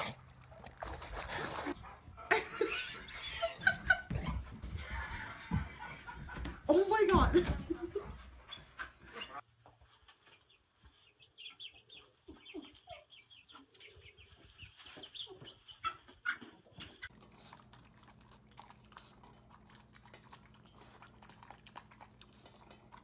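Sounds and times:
chick peeping: 0:10.2 - 0:16.6.

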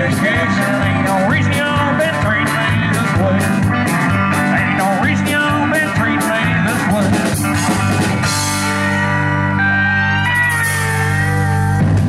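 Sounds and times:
drums with cymbal beat: 0:00.0 - 0:09.2, 0:10.3 - 0:12.0
bass guitar: 0:00.0 - 0:12.0
electric guitar: 0:00.0 - 0:12.0.

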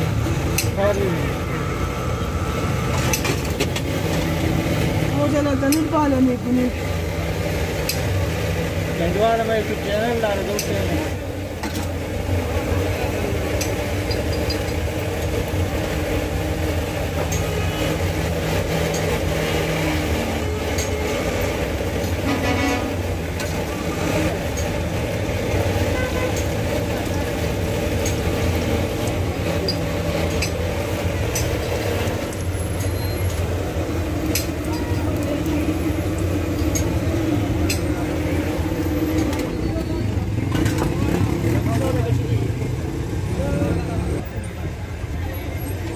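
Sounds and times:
street traffic engines: 0:00.0 - 0:45.9
car horn tooting: 0:22.2 - 0:23.0, 0:25.8 - 0:26.5.

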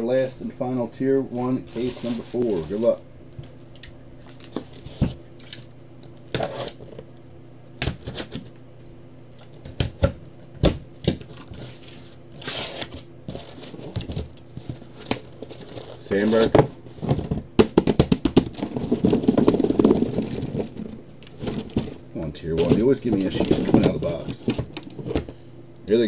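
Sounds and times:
cardboard scraping rustle: 0:01.6 - 0:03.0, 0:11.3 - 0:17.4, 0:18.5 - 0:25.4
box cutter slicing packing tape: 0:12.4 - 0:13.6.

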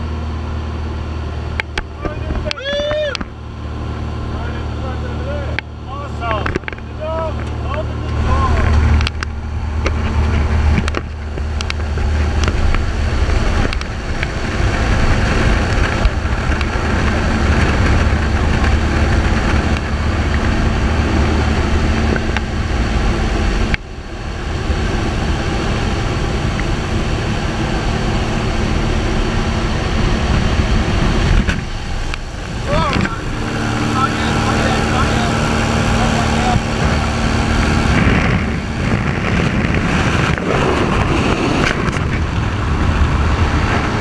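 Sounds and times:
light aircraft engine droning: 0:00.0 - 0:44.0
rushing air: 0:07.5 - 0:44.0.

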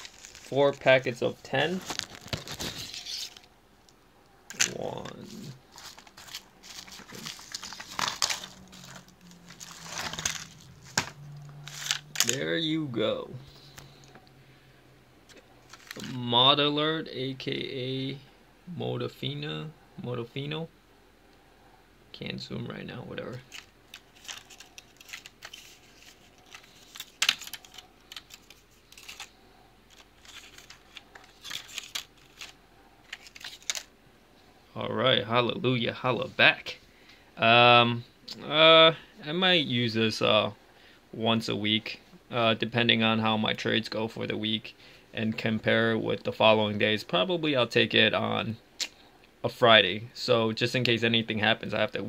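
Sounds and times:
foil blister packs crinkling: 0:00.0 - 0:03.5, 0:04.5 - 0:12.4, 0:15.7 - 0:16.2, 0:23.4 - 0:33.9.

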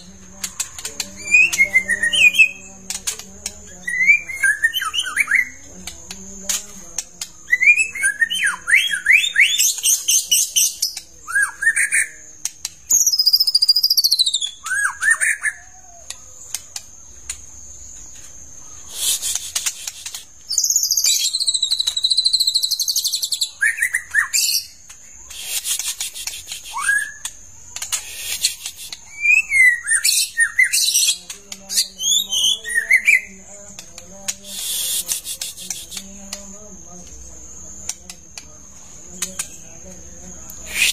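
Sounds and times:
bird whistling song: 0:00.7 - 0:03.0, 0:03.7 - 0:05.6, 0:07.4 - 0:12.2, 0:12.8 - 0:15.8, 0:18.7 - 0:33.4, 0:40.7 - 0:40.9.

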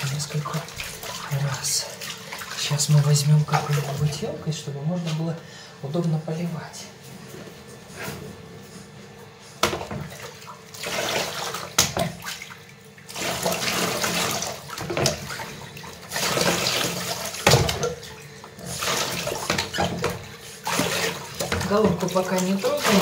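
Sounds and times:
water splashing in basin: 0:00.0 - 0:04.4, 0:09.6 - 0:23.0.

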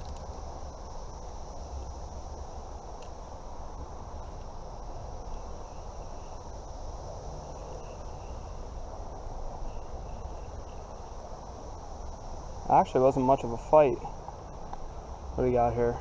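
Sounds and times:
high insect trill: 0:00.0 - 0:16.0
faint chirps: 0:04.2 - 0:16.0.

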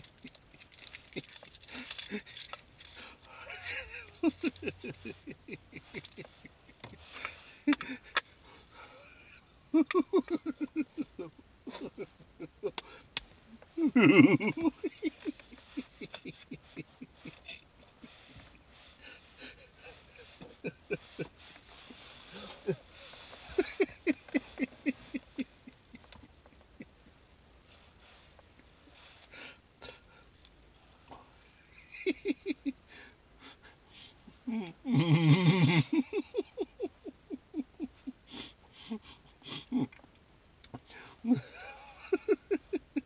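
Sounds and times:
man laughing in rapid pulses: 0:03.0 - 0:08.2, 0:08.8 - 0:13.0, 0:13.7 - 0:26.9, 0:31.7 - 0:32.8, 0:34.5 - 0:40.0, 0:41.2 - 0:43.0.

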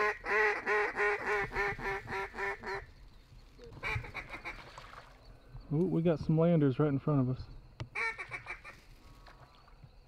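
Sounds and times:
duck call quacking: 0:00.0 - 0:02.8, 0:03.8 - 0:04.6, 0:08.0 - 0:08.8.

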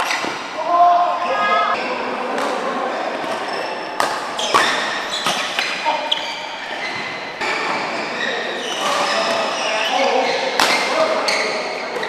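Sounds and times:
racket hitting shuttlecock: 0:03.2 - 0:05.8, 0:10.5 - 0:11.0.

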